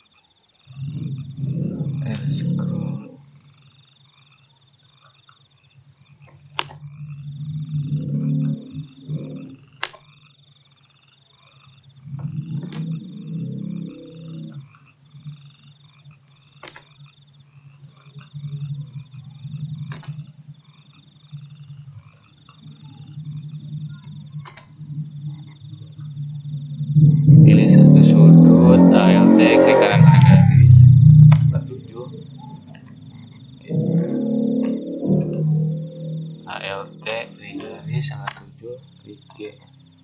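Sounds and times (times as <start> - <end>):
frog croaking: 0.0 - 40.0
frogs calling: 0.0 - 40.0
computer mouse clicks: 6.2 - 6.8, 9.8 - 10.1, 12.2 - 13.0.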